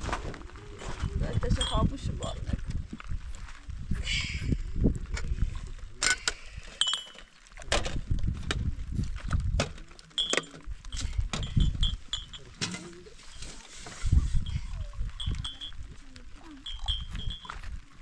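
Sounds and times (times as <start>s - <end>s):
glass cups clinking: 6.1s - 7.4s, 10.1s - 13.4s, 14.4s - 16.0s, 16.6s - 17.7s.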